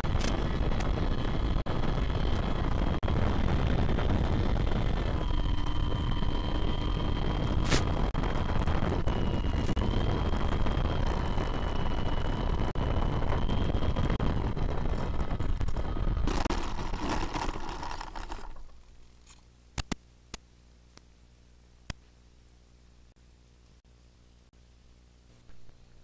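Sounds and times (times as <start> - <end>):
electric motor and propeller whine: 0.0 - 19.0.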